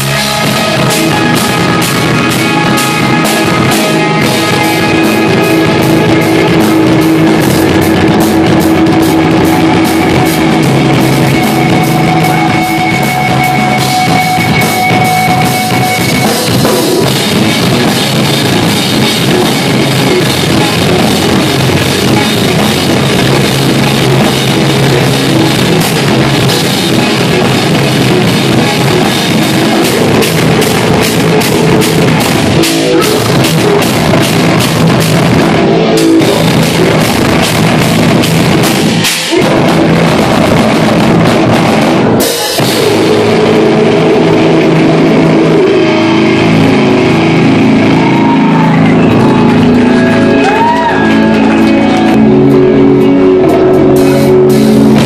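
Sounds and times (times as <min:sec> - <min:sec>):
busy drumming: 0:00.0 - 0:55.0
heavy distorted guitars: 0:00.0 - 0:55.0.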